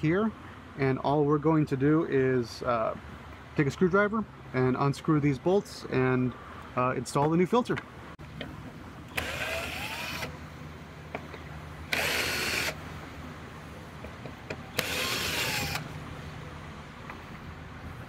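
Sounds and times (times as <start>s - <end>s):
cordless drill running: 9.1s - 10.3s, 11.9s - 12.8s, 14.8s - 15.9s.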